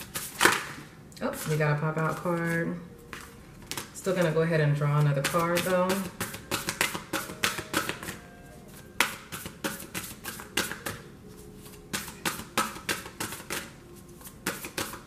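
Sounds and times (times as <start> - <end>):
cards being shuffled: 6.0 - 8.2, 11.6 - 15.0.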